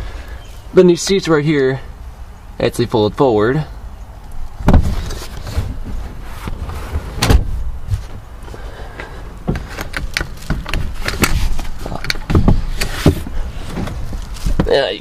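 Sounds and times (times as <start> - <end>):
rustling handling noise: 4.4 - 15.0
seat latches clicking and clunking: 4.6 - 8.2, 9.0 - 14.2
seat thump: 4.6 - 8.2, 9.4 - 14.8.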